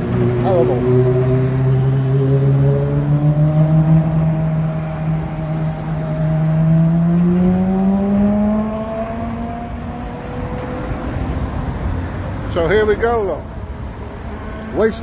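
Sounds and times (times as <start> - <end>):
vehicle engine pulling away: 0.0 - 11.4
low rumble of passing traffic: 0.0 - 15.0.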